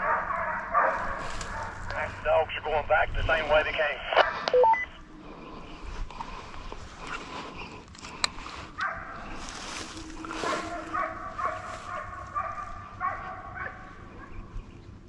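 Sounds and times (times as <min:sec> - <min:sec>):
hounds baying: 0:00.0 - 0:02.1, 0:08.4 - 0:15.0.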